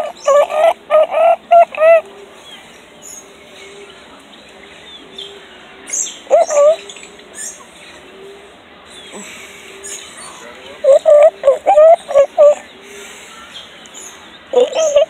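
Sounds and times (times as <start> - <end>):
bird calling loudly: 0.0 - 2.0, 6.0 - 7.6, 9.8 - 12.7, 14.5 - 15.0
faint high bird chirps: 9.9 - 15.0.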